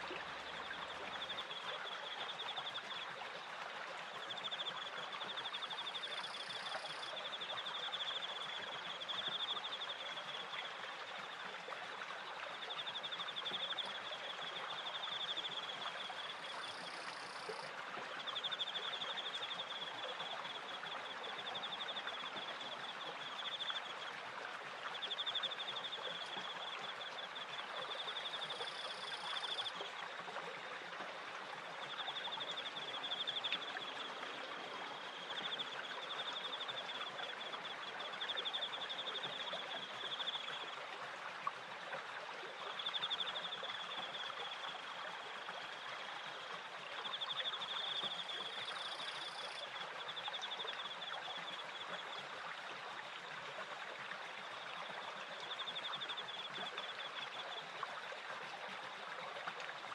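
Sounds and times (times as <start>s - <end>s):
crickets chirping: 4.2s - 8.5s, 14.8s - 17.7s, 27.9s - 29.7s, 47.1s - 50.9s.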